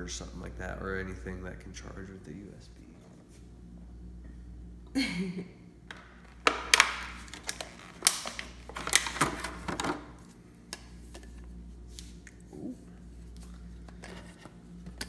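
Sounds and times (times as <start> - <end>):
plastic packaging crackling: 6.2 - 10.2.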